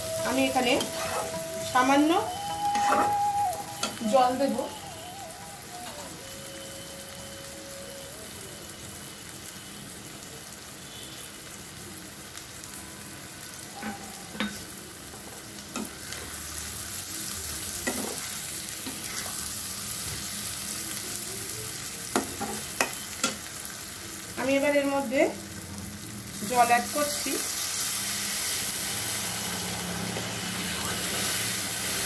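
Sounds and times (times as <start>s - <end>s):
food sizzling in oil: 0.0s - 32.0s
spatula scraping a pan: 0.8s - 1.6s.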